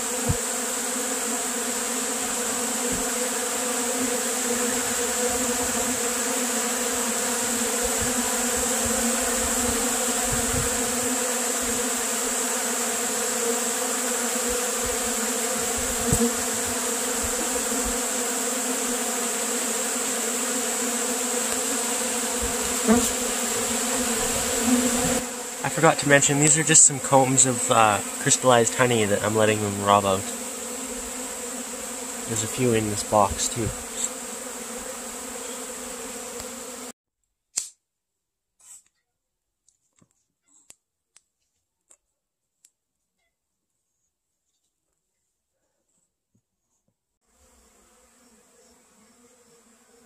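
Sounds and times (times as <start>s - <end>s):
bees buzzing: 0.0s - 37.0s, 47.3s - 50.0s.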